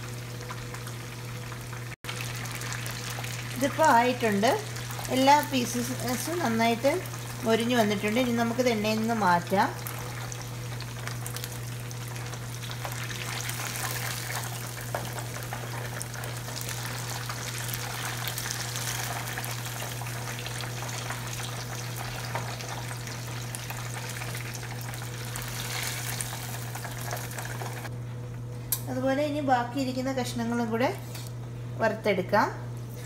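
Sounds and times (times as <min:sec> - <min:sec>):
oil sizzling and crackling: 0:00.0 - 0:27.9.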